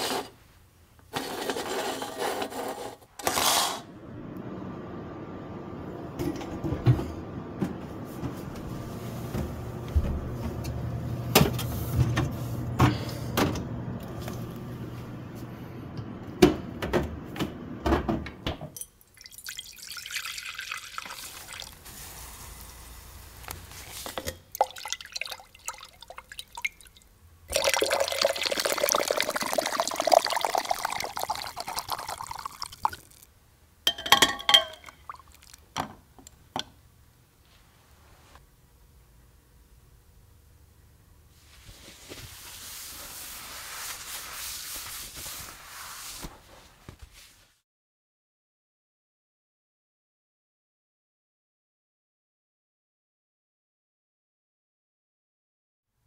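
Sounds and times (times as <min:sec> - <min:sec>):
liquid pouring into glass beaker: 0:19.1 - 0:21.8, 0:24.6 - 0:33.3, 0:34.6 - 0:35.6.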